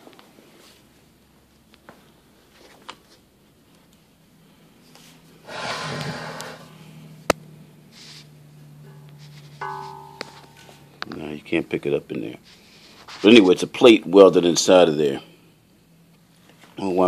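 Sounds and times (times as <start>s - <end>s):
faint low hum: 0.2s - 17.0s
breath close to microphone: 5.4s - 7.0s.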